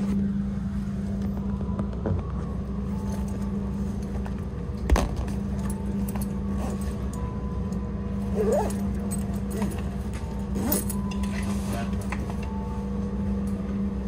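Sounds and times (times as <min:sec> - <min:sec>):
train carriage hum: 0:00.0 - 0:14.0
backpack rustling and clinking: 0:03.0 - 0:07.4, 0:08.2 - 0:12.5.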